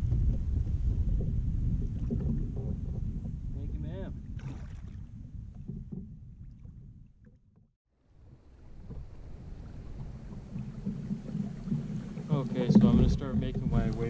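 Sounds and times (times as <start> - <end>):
wind rumble on microphone: 0.0 - 7.5, 8.1 - 14.0
water sounds: 0.0 - 14.0
faint knocks on kayak hull: 8.8 - 14.0.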